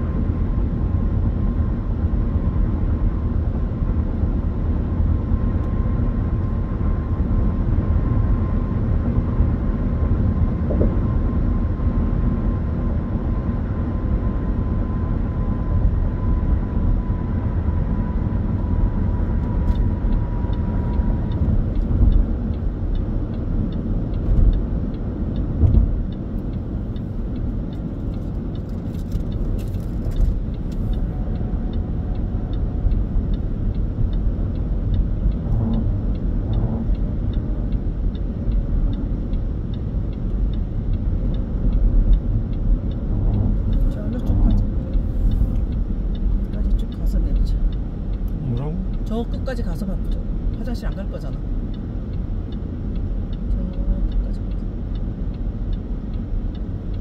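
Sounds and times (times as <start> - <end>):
car engine noise: 0.0 - 57.0
light regular ticking: 18.5 - 57.0
tyre and road rumble: 18.6 - 49.1.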